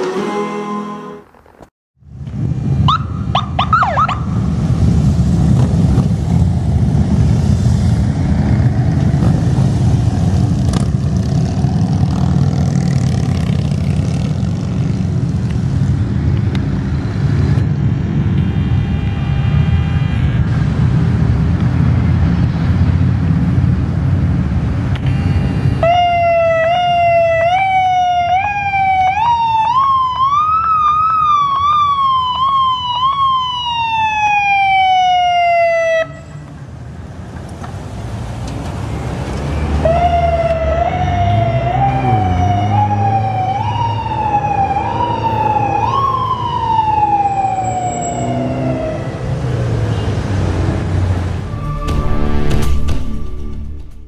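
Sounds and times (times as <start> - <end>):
engine and traffic rumble: 1.2 - 54.0
electronic police siren: 2.9 - 4.3, 25.0 - 36.4, 39.8 - 49.4.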